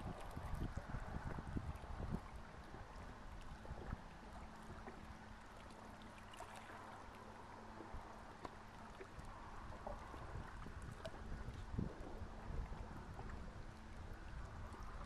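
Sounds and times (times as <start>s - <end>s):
wind on microphone: 0.0s - 5.2s, 8.9s - 15.0s
steady low hum: 0.0s - 15.0s.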